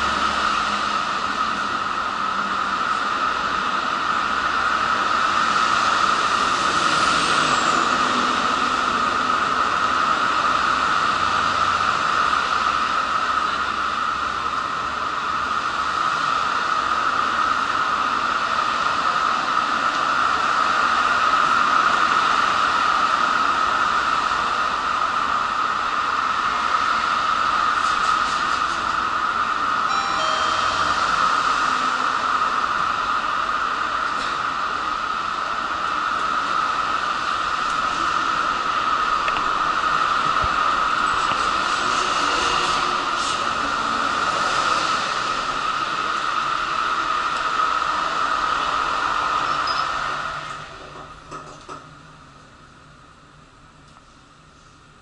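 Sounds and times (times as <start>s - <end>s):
train station hiss and hum: 0.0s - 55.0s
electronic chime: 29.9s - 31.9s.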